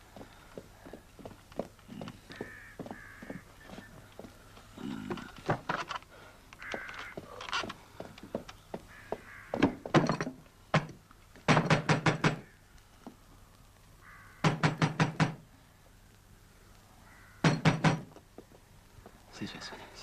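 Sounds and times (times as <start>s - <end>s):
fist knocking on wooden door: 11.5s - 12.5s, 14.4s - 15.4s, 17.4s - 18.1s.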